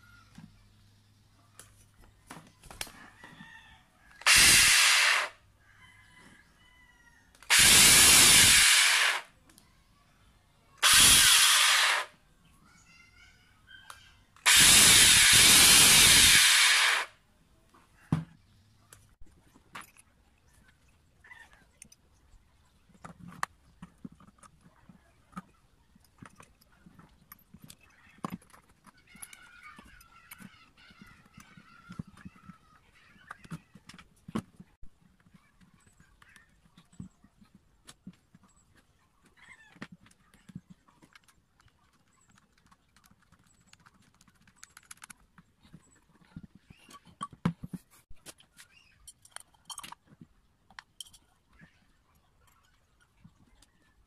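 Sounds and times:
plastic and metal parts clicking: 22.9s - 51.3s.

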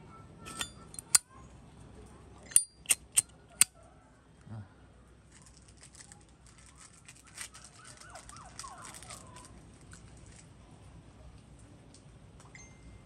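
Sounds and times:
metallic lighter clicks: 0.5s - 1.2s, 2.5s - 3.3s.

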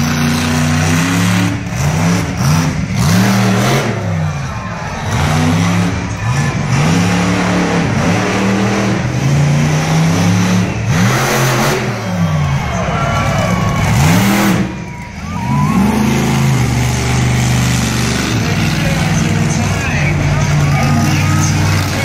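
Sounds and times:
loud rushes of noise: 0.0s - 22.0s
truck engine revving hard: 0.0s - 22.0s.

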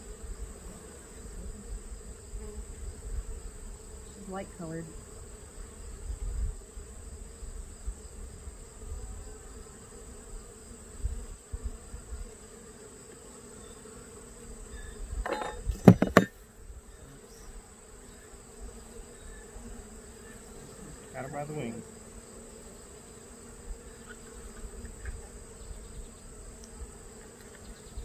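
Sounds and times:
bees buzzing: 0.0s - 28.0s
sharp knocks: 15.3s - 16.3s.

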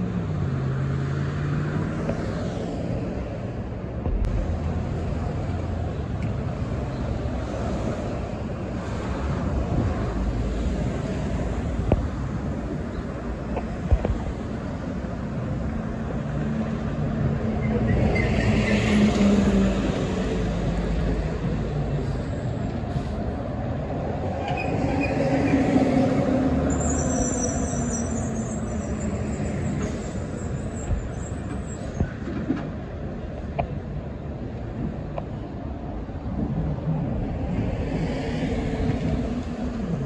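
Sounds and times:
traffic passing: 0.0s - 40.0s
thin high squeal: 26.7s - 32.0s.

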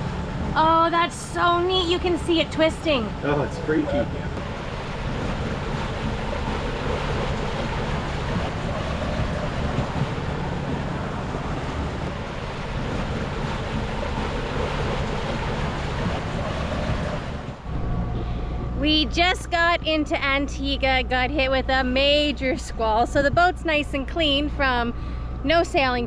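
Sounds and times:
water rushing along hull: 0.0s - 26.0s
wind noise on microphone: 3.7s - 20.0s.

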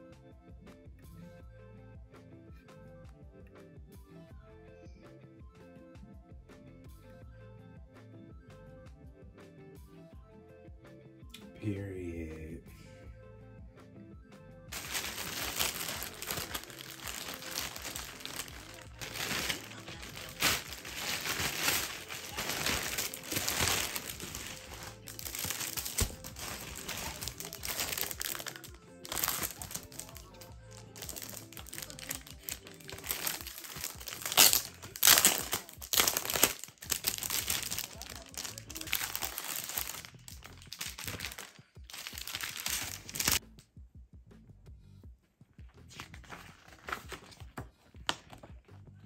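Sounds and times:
background music: 0.0s - 49.0s
plastic mailer crinkling: 14.7s - 43.4s.

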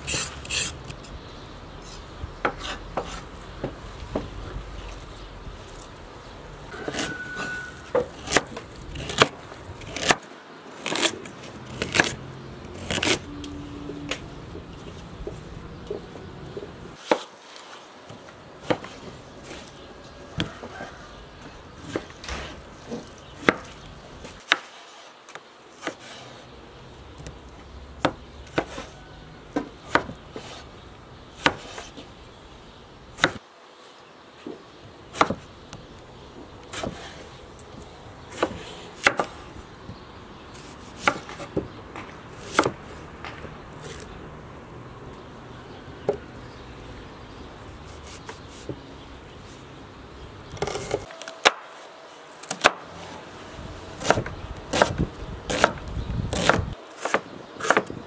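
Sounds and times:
knife chopping on wooden board: 54.0s - 57.9s.

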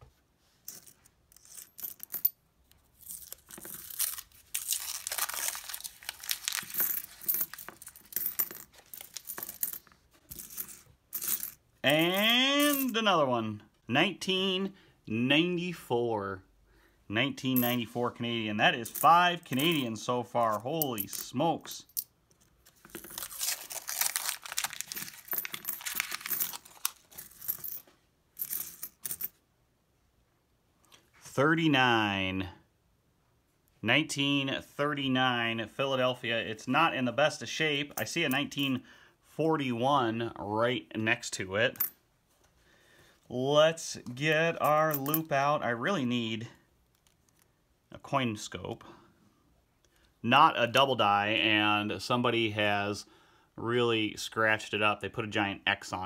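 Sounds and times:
coins clinking: 0.7s - 13.0s, 17.5s - 18.0s, 18.8s - 27.8s, 28.4s - 29.4s, 41.8s - 42.0s
coins tumbling out: 0.7s - 13.0s, 22.8s - 27.8s, 28.4s - 29.4s
paper wrapper tearing: 3.9s - 7.2s, 23.0s - 27.1s.

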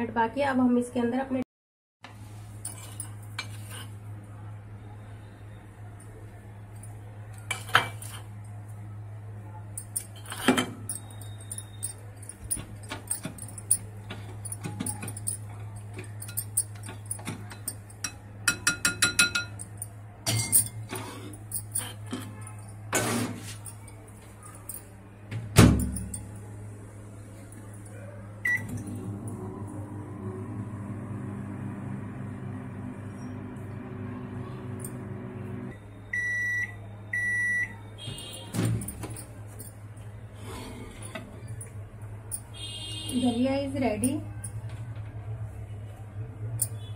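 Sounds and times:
microwave oven humming: 2.1s - 46.9s
spoon scraping glass bowl: 2.6s - 4.0s
spoon clinking against glass: 9.8s - 20.8s.

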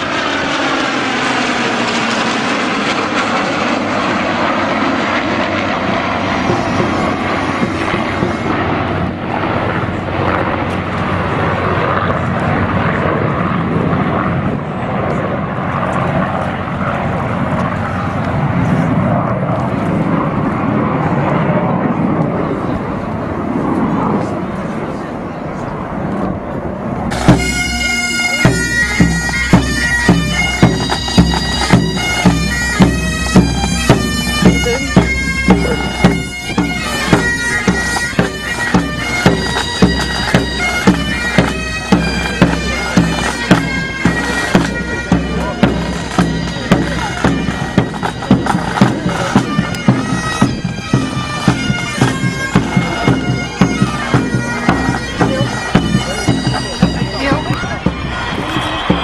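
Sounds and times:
bagpipes playing march: 0.0s - 20.1s, 27.1s - 59.0s
drums beating marching beat: 4.5s - 11.2s, 27.1s - 59.0s.

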